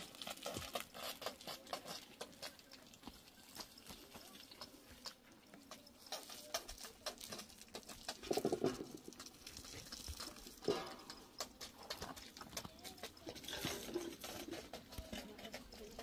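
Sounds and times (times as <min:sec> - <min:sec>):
footsteps on stony ground: 0:00.0 - 0:16.0
metal basin clinking: 0:08.2 - 0:09.4, 0:10.6 - 0:11.9.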